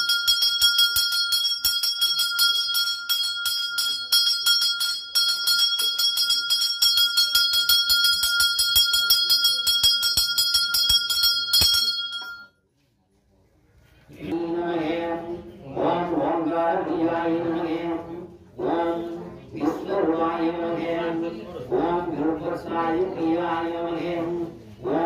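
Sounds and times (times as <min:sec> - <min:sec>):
brass bell rung rapidly: 0:00.0 - 0:12.5.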